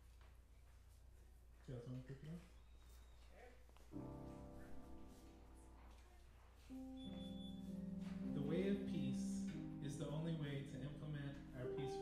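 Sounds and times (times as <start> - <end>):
electric keyboard chords: 3.9 - 5.9, 6.6 - 12.0.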